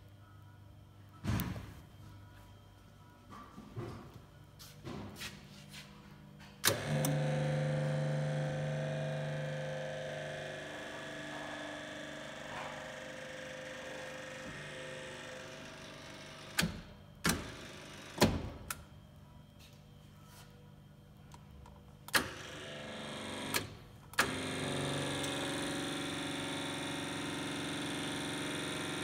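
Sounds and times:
mixer motor humming: 6.6 - 16.7, 22.3 - 29.0.

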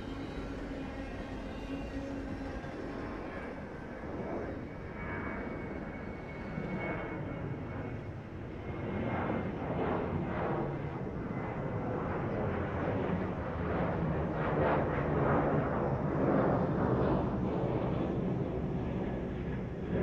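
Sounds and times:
jet aircraft passing overhead: 0.0 - 20.0.

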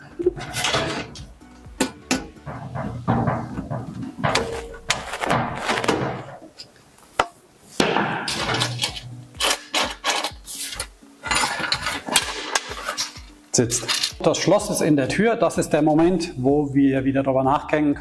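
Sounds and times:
sheet-metal door handled: 0.4 - 6.4.

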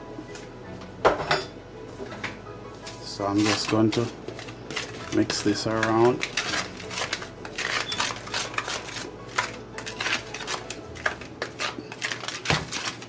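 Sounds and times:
gloved hands rustling and scraping: 2.8 - 13.0.

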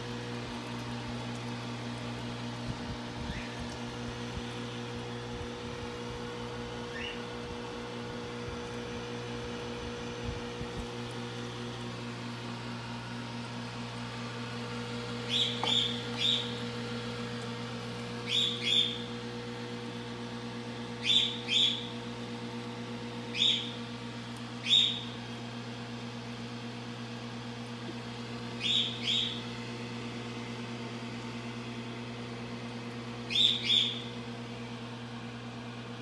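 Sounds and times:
steady electrical hum: 0.0 - 36.0
bird chirping: 15.3 - 16.5, 28.6 - 29.4, 33.3 - 34.1.

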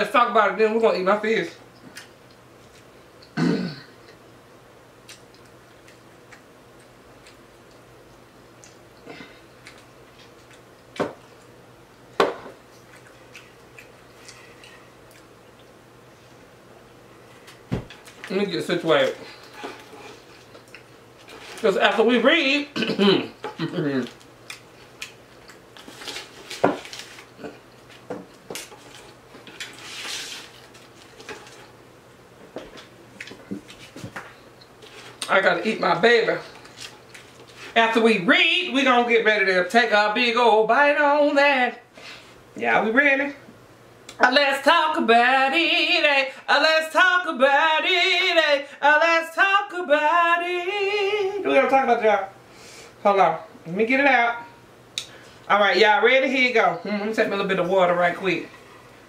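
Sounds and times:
fork scraping in foil pan: 19.2 - 20.3, 21.2 - 21.7, 28.7 - 31.7
rustling of food handled: 24.0 - 31.8.

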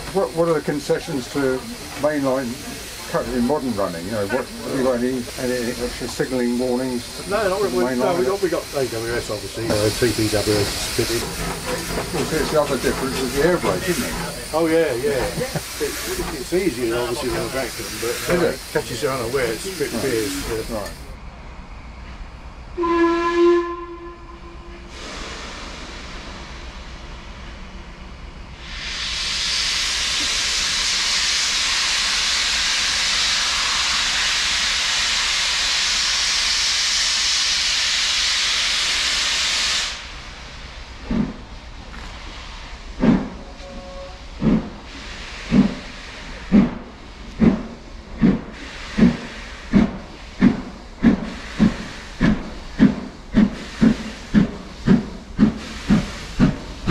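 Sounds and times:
locomotive exhaust beats: 0.0 - 21.1, 40.8 - 56.9
loud hiss of escaping steam: 0.0 - 21.2, 24.9 - 27.6, 28.5 - 56.9
steam locomotive whistle: 22.8 - 25.2, 43.5 - 44.3.

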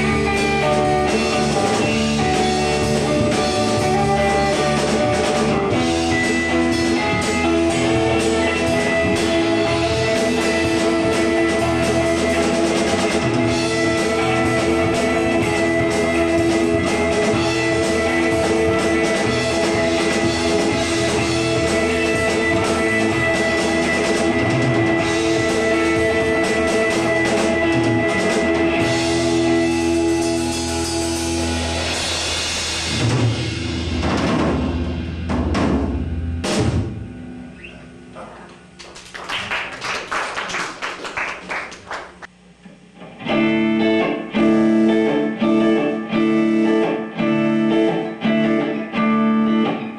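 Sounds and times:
drum kit with cymbals: 0.0 - 38.5
bass guitar: 0.0 - 49.9
electric guitar: 0.0 - 49.9.

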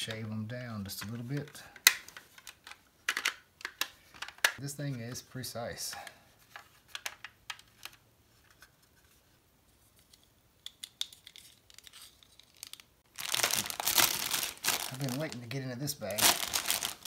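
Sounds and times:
plastic parts clicking: 0.8 - 4.6, 5.9 - 8.7
plastic bag crinkling: 11.3 - 17.0.

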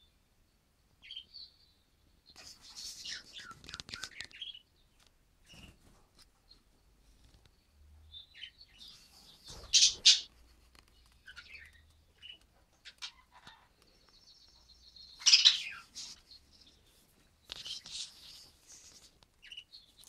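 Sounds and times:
loud sharp bird calls: 8.1 - 10.3, 11.0 - 20.0
budgerigars chirping: 8.2 - 10.3, 11.2 - 16.9
thin rapid bird trill: 14.1 - 16.5.

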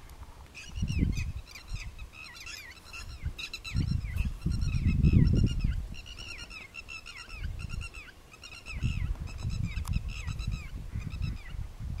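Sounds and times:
low gusty rumble: 3.1 - 6.2, 8.7 - 12.0.

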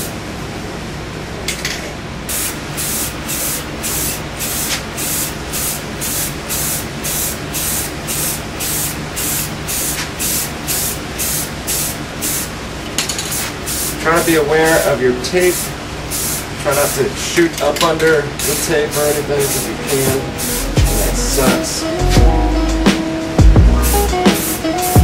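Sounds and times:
spray can hissing in bursts: 2.3 - 12.6, 13.2 - 14.2, 15.4 - 17.1, 18.4 - 21.8, 23.9 - 25.0.

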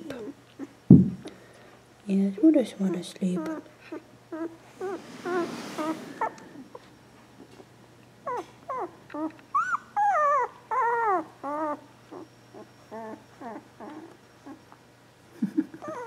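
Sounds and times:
puppy whimpering: 0.0 - 0.8, 2.8 - 7.6, 8.2 - 14.7, 15.7 - 16.0.

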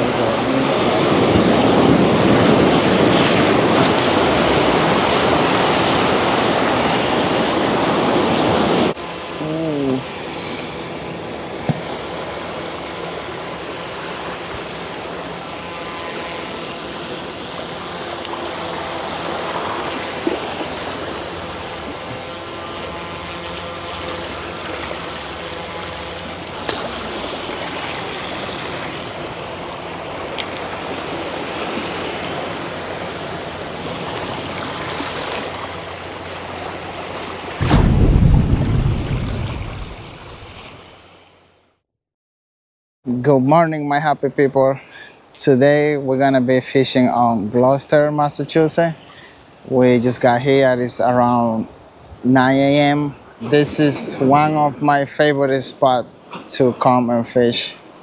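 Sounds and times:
sea water rushing over rocks: 0.0 - 9.0, 30.1 - 41.0.

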